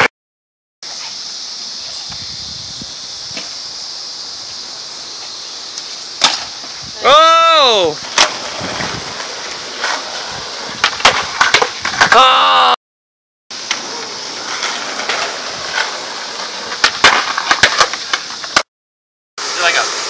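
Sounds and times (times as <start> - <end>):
skateboard wheels rolling on asphalt: 0.8 - 12.4, 13.5 - 18.7, 19.4 - 20.0
skateboard deck clacking on pavement: 6.2 - 6.8, 8.0 - 12.2, 13.6 - 18.6.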